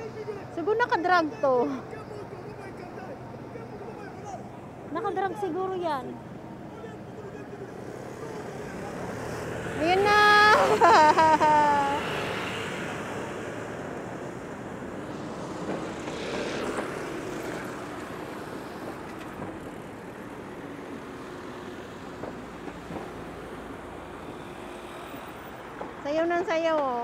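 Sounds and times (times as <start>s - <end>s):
scooters and cars passing: 0.0s - 27.0s
steady traffic hum: 0.0s - 27.0s.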